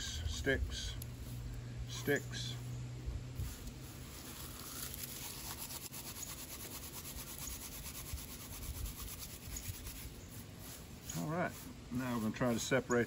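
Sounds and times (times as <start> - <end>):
dry leaves crushed between palms: 3.4 - 11.6.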